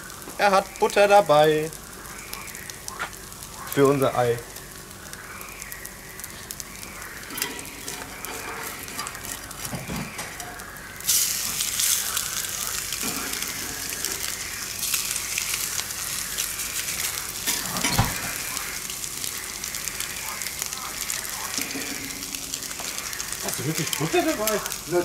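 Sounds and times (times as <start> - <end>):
eggs and bacon sizzling: 0.0 - 25.0
metal spatula scraping a griddle: 7.4 - 9.4.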